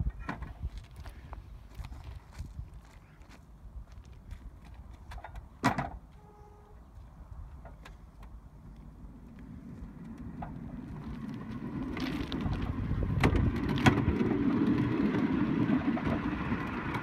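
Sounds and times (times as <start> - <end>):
steel wheels rumbling on rails: 9.0 - 17.0.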